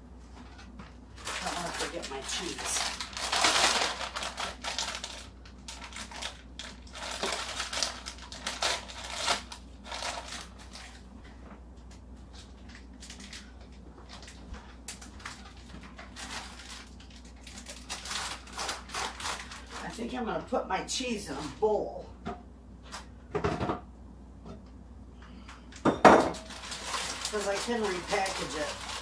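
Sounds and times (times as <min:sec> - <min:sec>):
plastic bag crinkling: 0:00.6 - 0:11.1, 0:12.3 - 0:20.2, 0:26.3 - 0:29.0.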